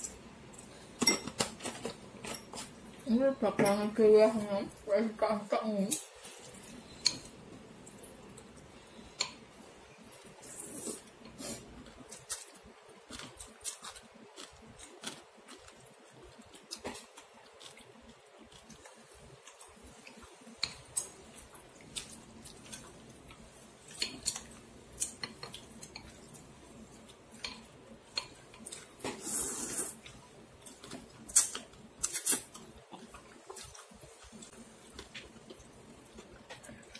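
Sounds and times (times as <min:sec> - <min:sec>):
chopsticks and spoon clinking on bowl: 0:01.0 - 0:02.7.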